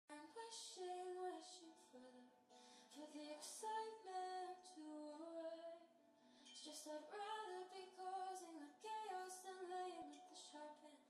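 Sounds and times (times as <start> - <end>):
woman singing slow song: 0.1 - 11.0.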